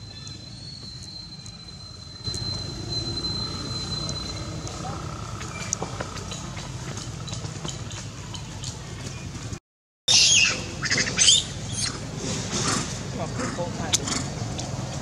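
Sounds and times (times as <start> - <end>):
monkey shrill calls: 0.0 - 5.8, 10.1 - 12.0.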